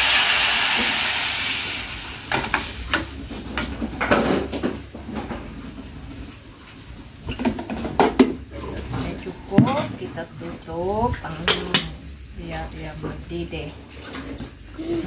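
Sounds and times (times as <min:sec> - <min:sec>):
water sizzling in hot oil: 0:00.0 - 0:03.4.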